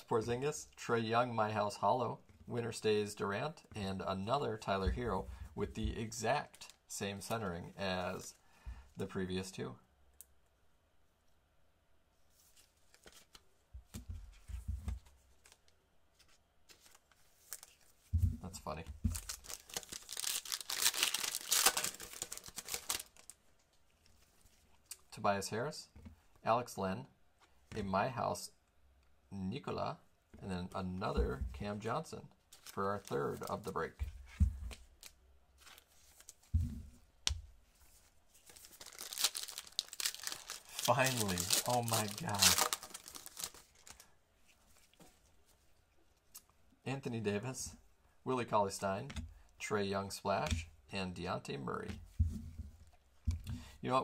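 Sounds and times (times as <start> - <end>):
cards clicking and rustling: 19.1 - 23.4, 38.4 - 44.0
foil pack crinkling and tearing: 19.1 - 23.4, 38.5 - 44.0.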